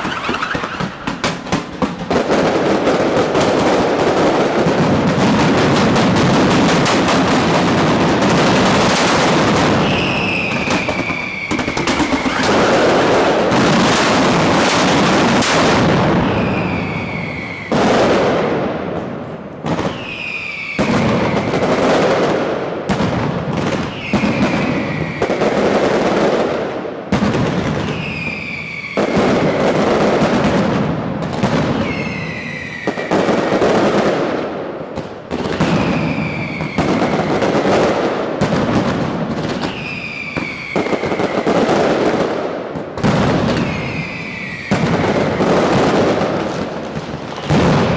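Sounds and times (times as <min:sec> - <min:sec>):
descending whistling firecrackers: 0:00.0 - 0:47.9
firecrackers crackling and banging: 0:00.0 - 0:47.9.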